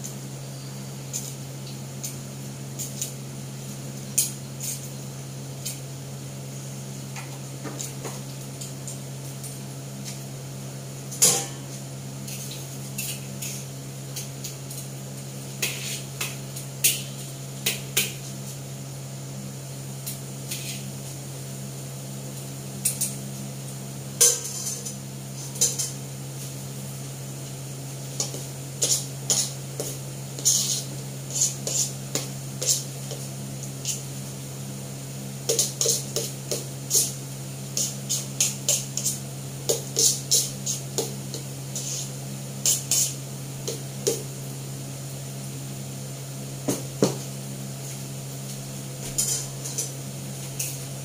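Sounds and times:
spatula scraping steel wok: 15.6s - 16.1s, 20.5s - 20.9s, 28.2s - 33.2s, 35.5s - 43.8s.

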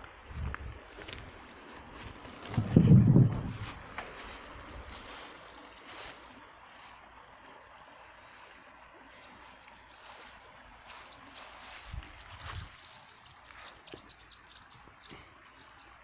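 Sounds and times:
footsteps rustling through dry grass: 0.0s - 7.2s, 9.3s - 14.1s
faint outdoor hiss: 0.0s - 16.0s.

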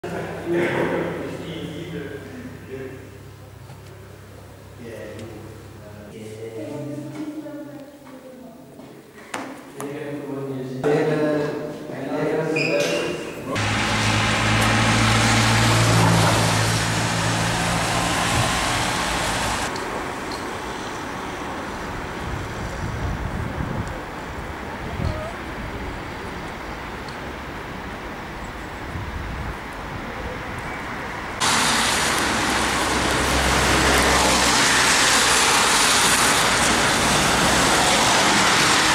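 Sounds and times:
engine humming: 13.6s - 38.9s
traffic rushing noise: 13.6s - 38.9s.

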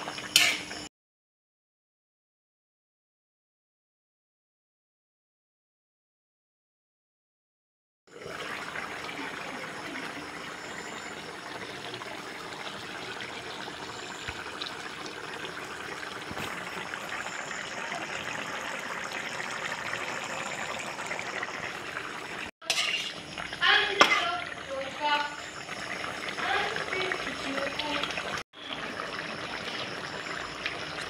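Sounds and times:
stew bubbling and sizzling: 0.0s - 0.9s, 8.1s - 31.0s.

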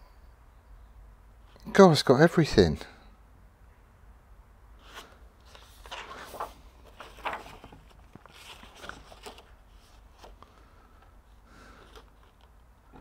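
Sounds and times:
paper pages rustling: 4.8s - 13.0s.

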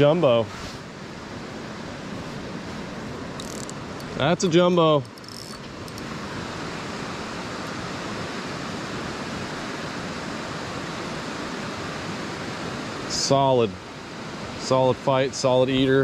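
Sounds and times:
river water rushing over riffle: 0.0s - 16.0s.

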